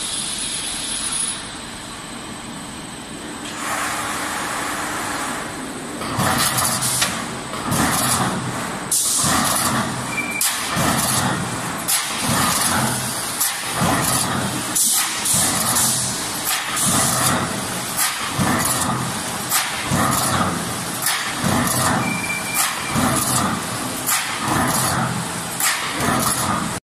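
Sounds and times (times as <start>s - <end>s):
steady machine hum: 0.0s - 26.8s
clattering shear bursts with clicks: 6.0s - 26.8s.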